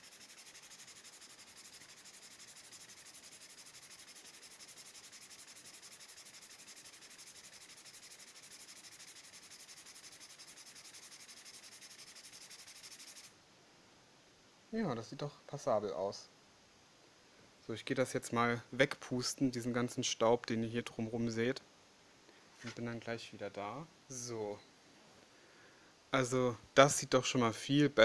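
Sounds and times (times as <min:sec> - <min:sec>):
nail file scraping paper edges: 0:00.0 - 0:13.3.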